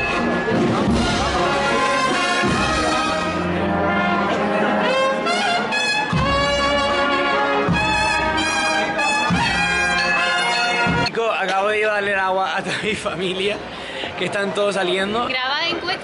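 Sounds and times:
brass band playing a march: 0:00.0 - 0:11.1.

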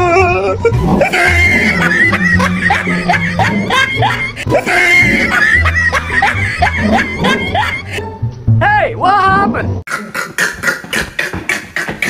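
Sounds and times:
upbeat background music: 0:00.0 - 0:12.0.

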